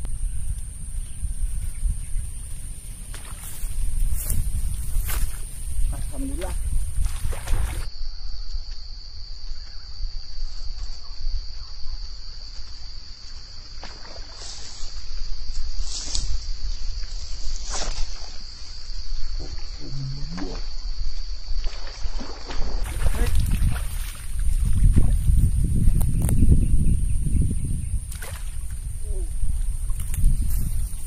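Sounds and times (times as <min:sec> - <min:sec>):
wind rumble on microphone: 0:00.0 - 0:08.6, 0:22.6 - 0:31.0
insects chirring: 0:00.0 - 0:31.0.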